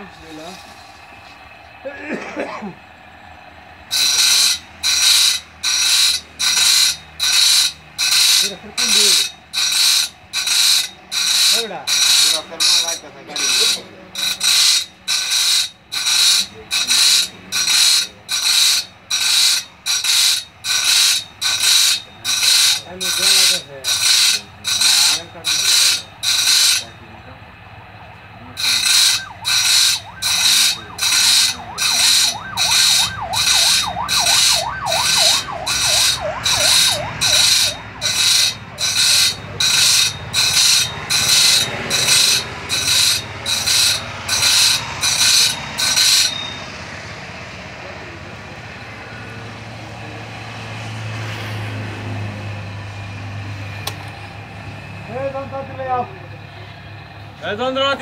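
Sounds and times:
grinder motor running: 0.0 - 51.6
grinder wheel grinding steel blade: 0.0 - 57.6.

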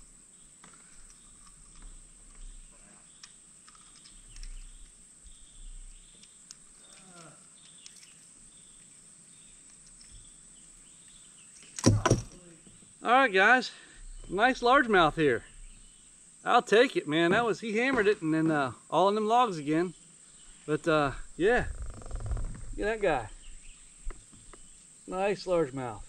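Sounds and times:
steady high-pitched hiss: 0.0 - 26.0
clicks and rustles of handling fish: 6.1 - 8.4
loud sudden knock: 11.8 - 12.4.

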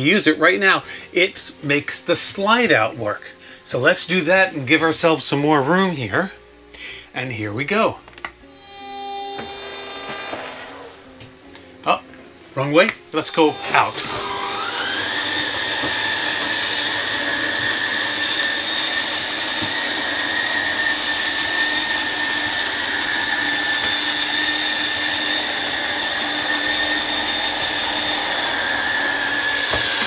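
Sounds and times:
electric motor whining: 8.4 - 11.5, 13.2 - 30.0.

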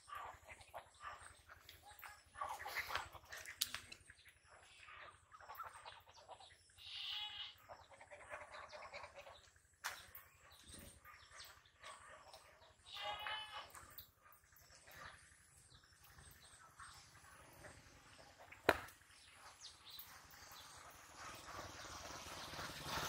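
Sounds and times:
ducks calling: 0.0 - 10.0.

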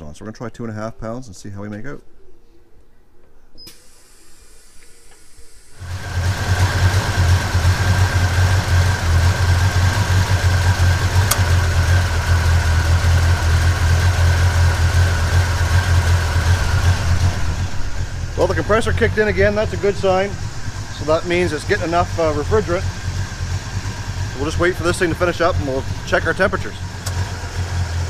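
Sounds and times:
car engine idling: 5.8 - 28.0.

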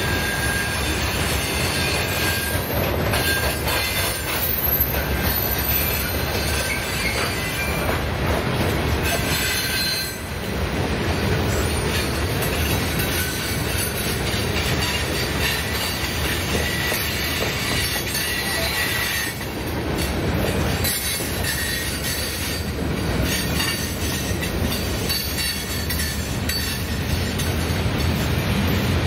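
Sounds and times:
high wheel squeal: 0.0 - 7.9, 9.0 - 10.3, 14.7 - 19.5, 20.8 - 25.9
freight train wheels rumbling: 0.0 - 29.0.

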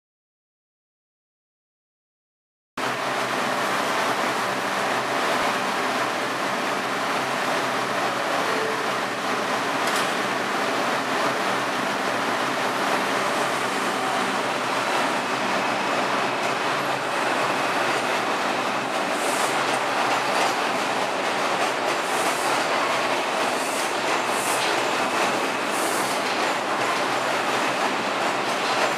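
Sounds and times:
train on adjacent track: 2.8 - 28.9
train wheels rumbling: 3.8 - 28.9.

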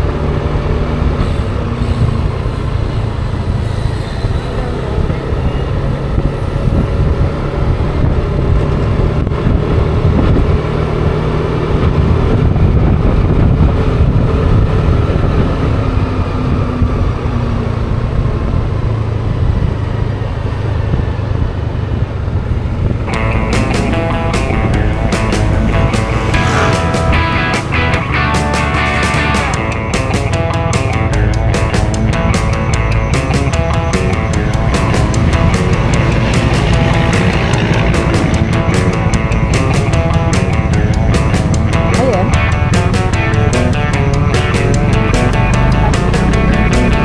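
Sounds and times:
wind rushing over microphone: 0.0 - 28.4
scooter engine hum: 0.0 - 47.0.

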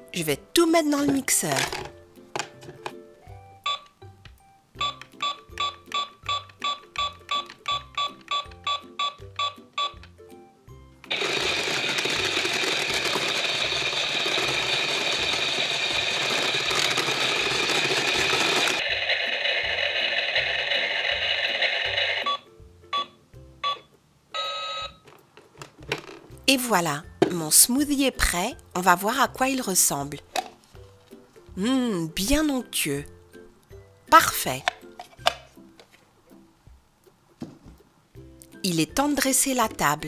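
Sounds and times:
toy blender whirring: 11.1 - 22.3.

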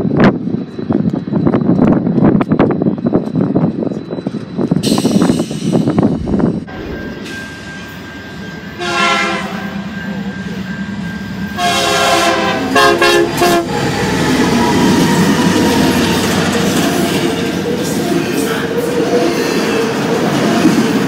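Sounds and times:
train engines and wheels on rails: 0.0 - 21.0
locomotive air horn blasts: 8.8 - 9.8, 11.6 - 13.9.

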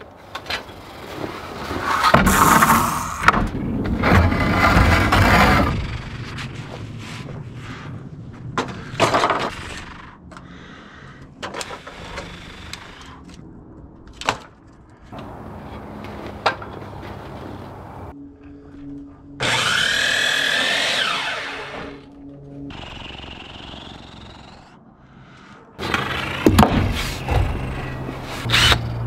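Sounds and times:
miter saw cutting wood: 19.4 - 22.1, 22.7 - 24.8, 25.8 - 29.0.

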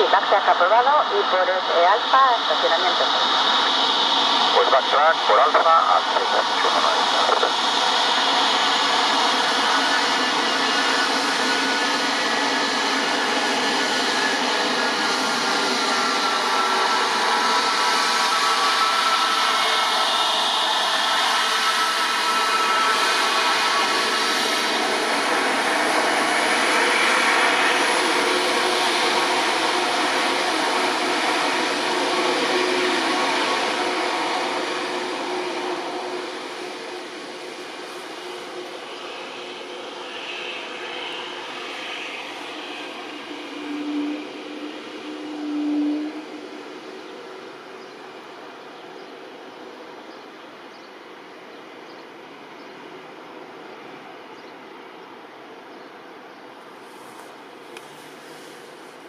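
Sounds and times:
jet engine roar with whine: 0.0 - 59.0.

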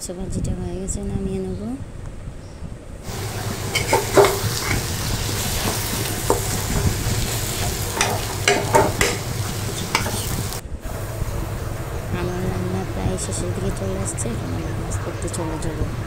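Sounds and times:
steel spatula scraping a pan: 3.1 - 10.6
food sizzling in oil: 3.1 - 12.6.

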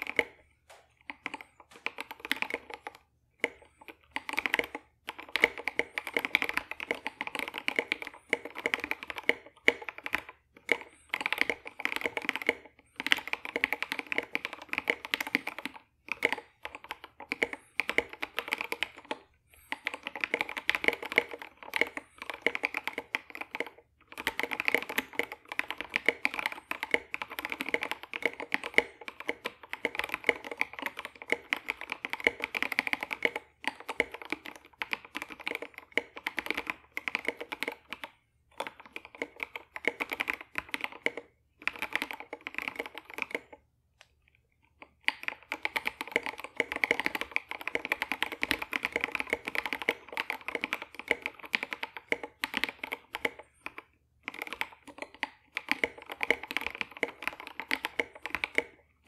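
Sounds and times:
mechanical keyboard typing: 0.0 - 59.0.

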